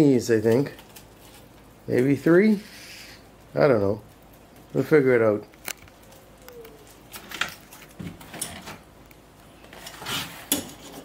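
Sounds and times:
roller and brush scraping: 0:09.6 - 0:11.0.

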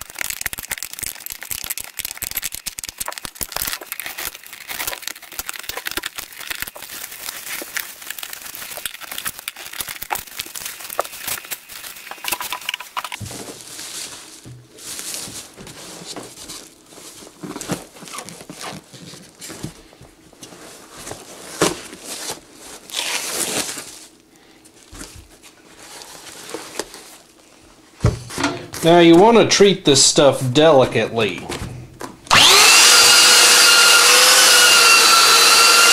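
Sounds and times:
plastic sheeting crinkling: 0:00.0 - 0:24.2.

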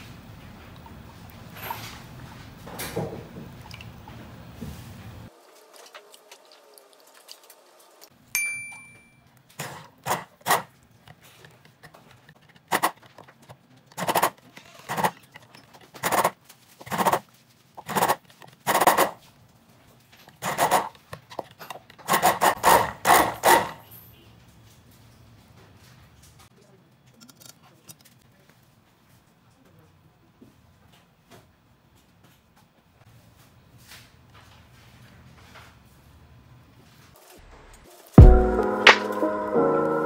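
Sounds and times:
clink against glass cup: 0:08.4 - 0:09.2
stick blender pulsing: 0:09.6 - 0:17.2, 0:17.8 - 0:19.2, 0:20.4 - 0:23.8.

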